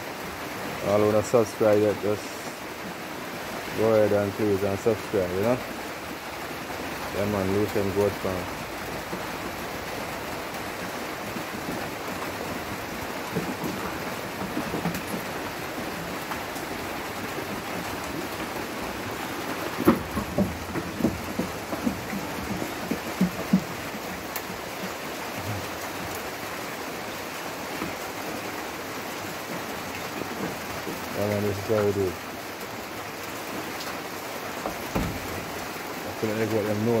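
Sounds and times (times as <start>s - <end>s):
rain-like hiss: 0.0s - 37.0s.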